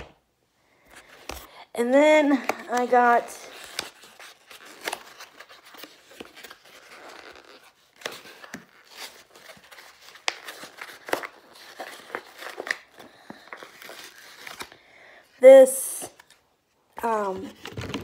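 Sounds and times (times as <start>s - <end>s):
cardboard packaging rustling: 2.3s - 14.8s
cardboard tearing: 2.7s - 13.0s.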